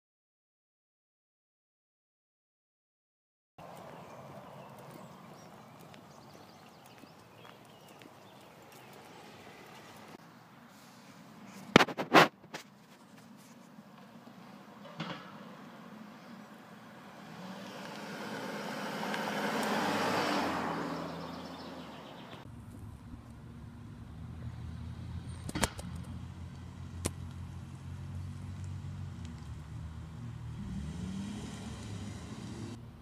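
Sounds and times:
car passing: 3.6 - 11.5, 14.1 - 33.0
car engine humming: 15.5 - 33.0.

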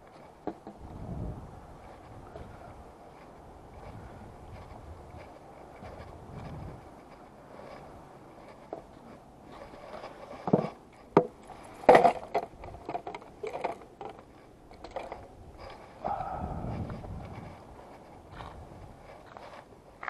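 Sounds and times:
rustling: 0.0 - 20.0
fishing rods clacking together: 8.5 - 15.8.

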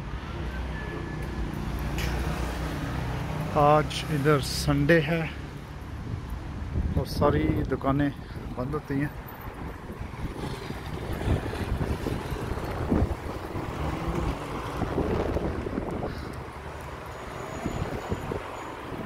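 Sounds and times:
road traffic rumble: 0.0 - 19.0
wind buffeting microphone: 6.0 - 19.0.

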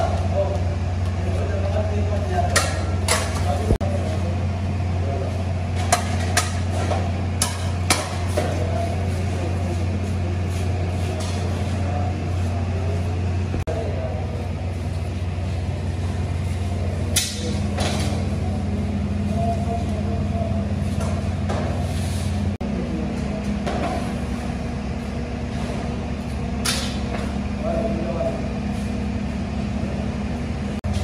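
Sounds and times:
steady low hum: 0.0 - 31.0
metal ladles clanking on pots: 2.4 - 3.6, 5.7 - 8.7.

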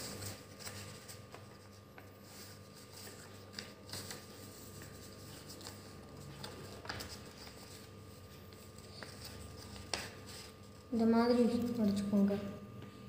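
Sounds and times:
paper rustling and creasing: 0.0 - 12.1
soft paper clicks: 2.9 - 7.7, 8.4 - 10.5.

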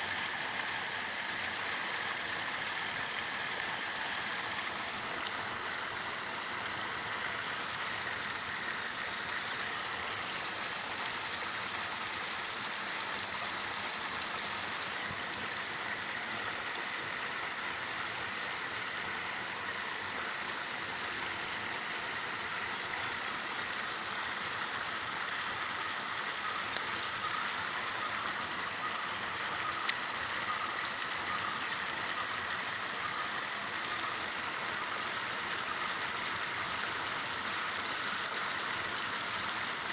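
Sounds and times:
water hissing in a canal: 0.0 - 39.9
faint clicks: 26.7 - 27.0.

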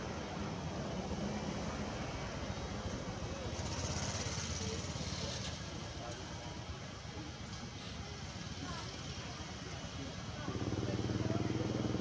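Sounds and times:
low background noise: 0.0 - 12.0.

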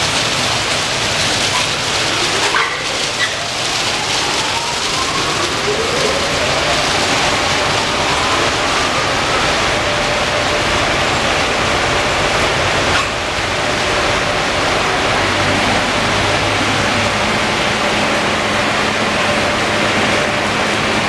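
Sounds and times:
water spray hissing: 0.0 - 21.0.

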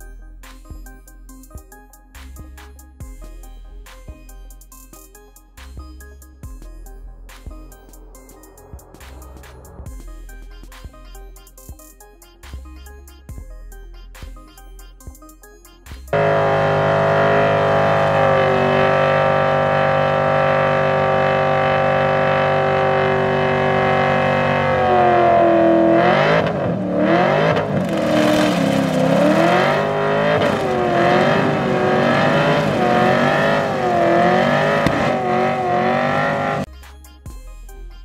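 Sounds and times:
car engine revving high: 16.1 - 36.7.

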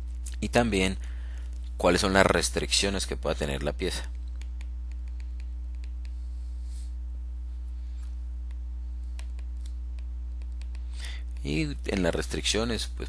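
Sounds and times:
low electrical hum: 0.0 - 13.0
stylus tapping on tablet screen: 4.4 - 6.2, 8.4 - 10.9.

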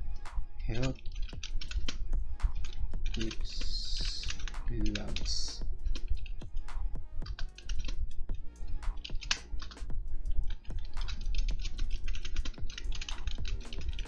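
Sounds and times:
typing on computer keyboard: 0.9 - 5.3, 7.2 - 8.0, 8.8 - 9.8, 10.4 - 14.0.

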